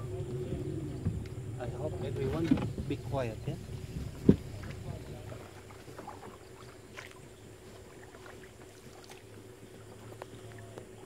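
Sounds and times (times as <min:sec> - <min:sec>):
small boat motor running: 0:00.0 - 0:11.0
faint chirps and ticks: 0:00.2 - 0:11.0.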